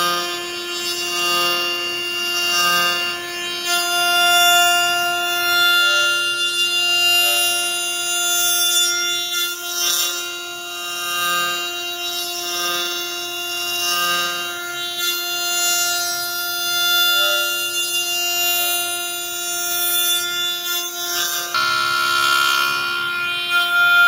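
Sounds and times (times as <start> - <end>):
router spindle whining: 0.0 - 24.0
bit cutting wood: 11.0 - 24.0.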